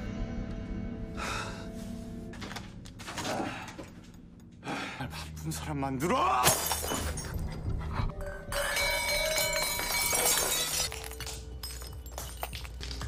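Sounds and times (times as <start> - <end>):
low music drone: 0.0 - 6.3
glass shattering: 6.4 - 7.6, 8.5 - 13.0.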